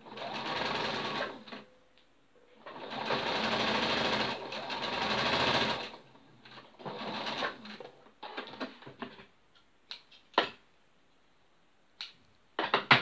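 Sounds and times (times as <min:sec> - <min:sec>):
electric sewing machine stitching: 0:00.0 - 0:01.4, 0:02.6 - 0:06.0.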